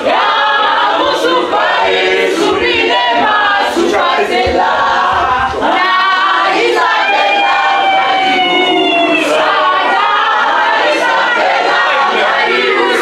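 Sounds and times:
crowd singing unaccompanied: 0:00.0 - 0:13.0.

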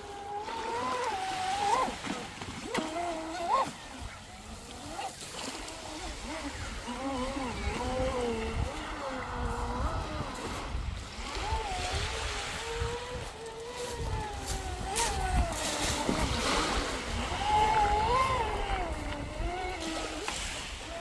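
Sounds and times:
electric motor whine: 0:00.0 - 0:21.0.

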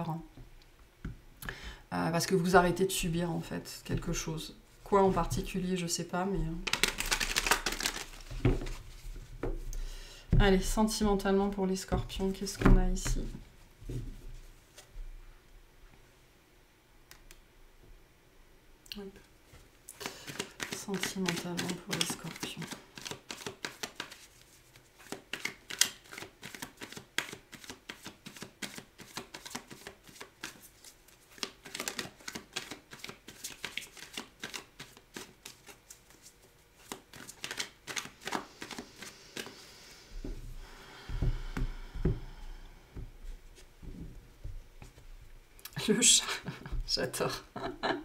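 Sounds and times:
cards being shuffled: 0:06.6 - 0:09.0, 0:19.9 - 0:39.6.

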